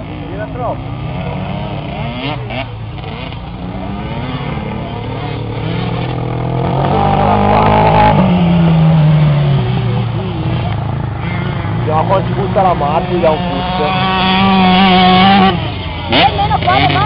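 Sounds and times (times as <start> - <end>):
three-wheeler engines revving: 0.0 - 17.0.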